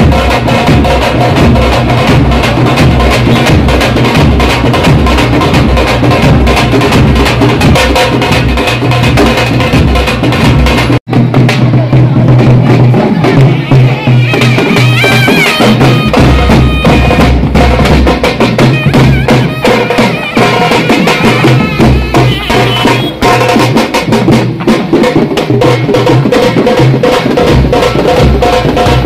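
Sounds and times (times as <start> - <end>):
fast dense drumming: 0.0 - 29.0
sliding melody: 13.6 - 23.0.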